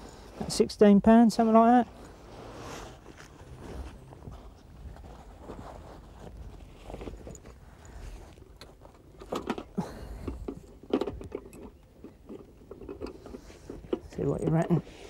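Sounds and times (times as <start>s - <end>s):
nylon sling rustling and clicking: 1.9s - 9.8s.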